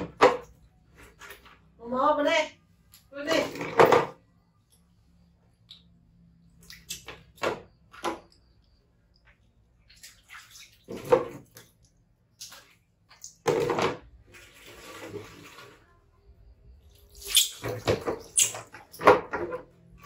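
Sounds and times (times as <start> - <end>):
water splashing: 9.8 - 13.5.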